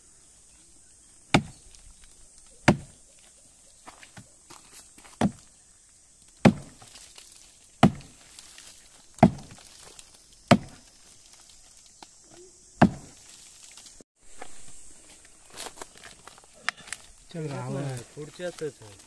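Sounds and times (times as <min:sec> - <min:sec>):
axe chopping wood: 0:01.3 - 0:01.6, 0:02.6 - 0:03.0, 0:03.9 - 0:05.5, 0:06.4 - 0:07.0, 0:07.8 - 0:08.3, 0:09.2 - 0:10.9, 0:12.8 - 0:13.2.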